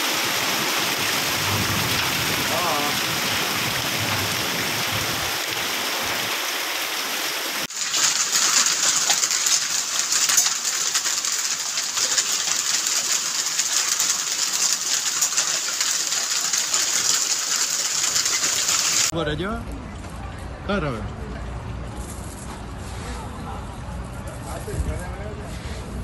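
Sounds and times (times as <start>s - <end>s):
hail pelting the ground: 0.0s - 19.1s.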